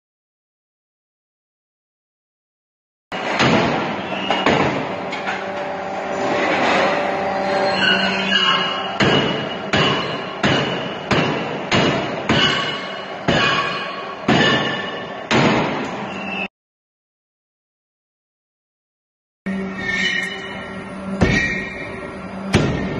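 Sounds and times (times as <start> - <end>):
forging machine running: 3.2 - 16.2, 19.5 - 22.9.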